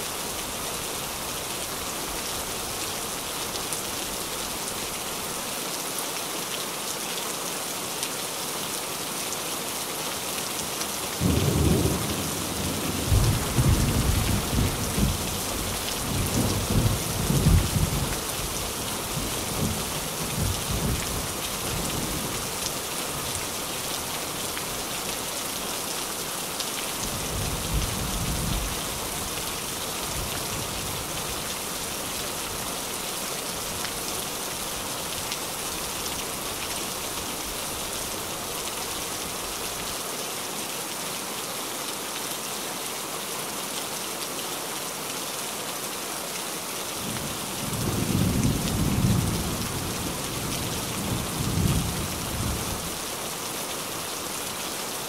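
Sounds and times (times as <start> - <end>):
rain drumming on a tin roof: 0.0 - 55.0
thunder rumbling: 11.2 - 15.3.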